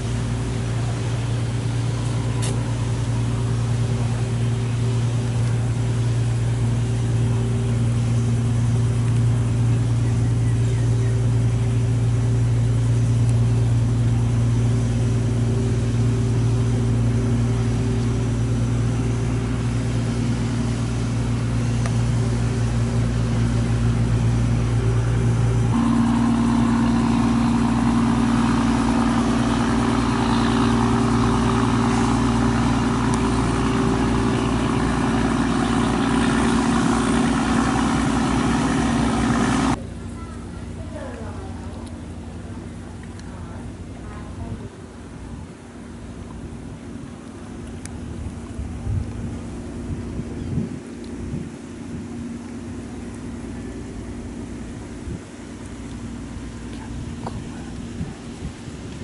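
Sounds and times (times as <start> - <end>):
motor humming: 0.0 - 44.6.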